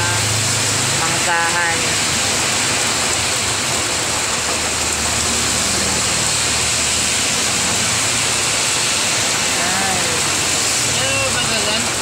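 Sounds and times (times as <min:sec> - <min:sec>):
heavy rain on vehicle roof: 0:00.0 - 0:12.0.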